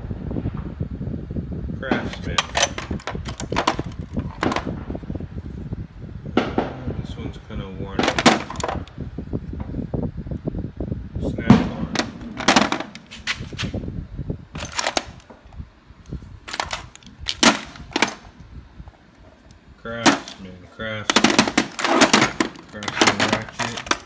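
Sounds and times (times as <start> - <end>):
steel sockets clinking: 2.1 - 4.6, 11.9 - 13.2, 14.6 - 15.3, 16.5 - 18.3, 19.3 - 20.5, 21.1 - 24.0.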